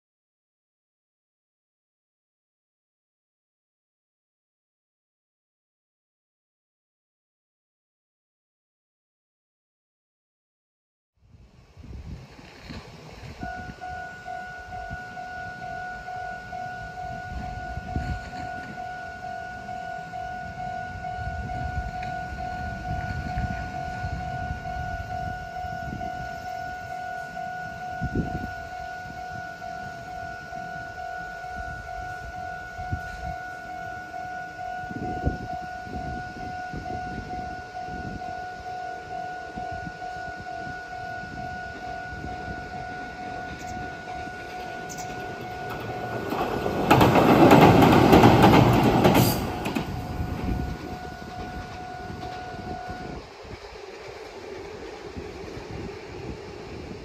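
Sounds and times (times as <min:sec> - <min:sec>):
train crossing bridge: 0:11.6 - 0:57.0
level-crossing bell two tones: 0:13.4 - 0:47.0.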